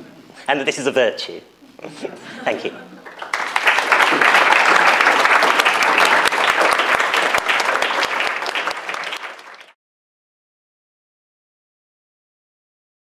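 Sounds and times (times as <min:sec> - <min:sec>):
audience applauding: 0:03.0 - 0:09.8.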